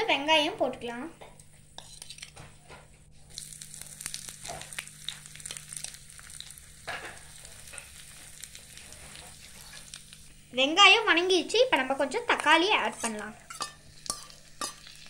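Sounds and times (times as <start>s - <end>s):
onions sizzling in hot oil: 3.2s - 15.0s.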